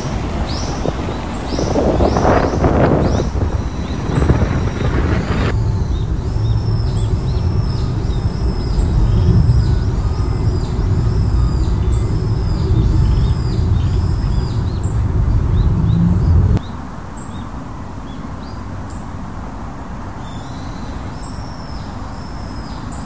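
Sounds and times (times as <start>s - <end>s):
car road and engine rumble: 0.0s - 16.6s
faint high chirp: 0.0s - 17.4s.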